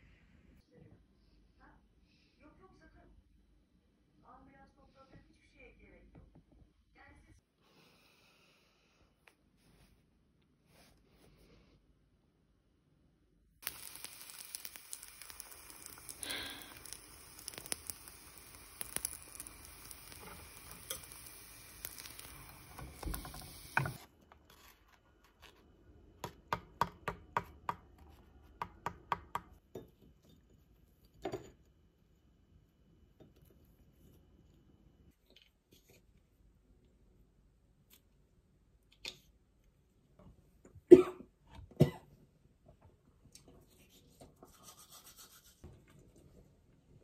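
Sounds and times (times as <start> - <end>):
steady hiss: 13.6 - 24.1.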